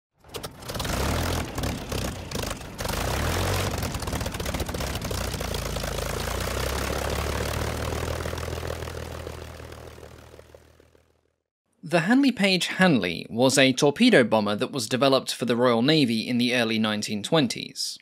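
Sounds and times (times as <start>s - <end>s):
propeller aircraft engine droning: 0.2s - 11.4s.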